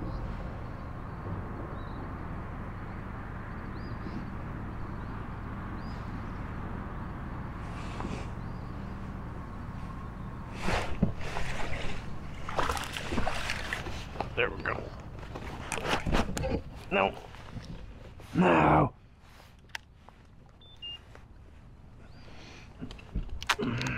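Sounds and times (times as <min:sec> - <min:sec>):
water splashing and sloshing: 0:09.7 - 0:18.4.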